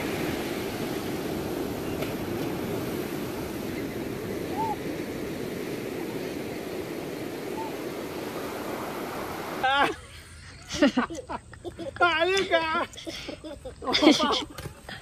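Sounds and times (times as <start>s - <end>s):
ocean surf breaking: 0.0s - 10.0s.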